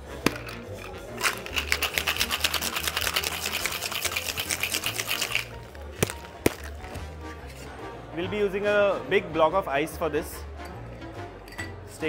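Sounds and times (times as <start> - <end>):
ice rattling in metal shaker: 0.3 - 6.8.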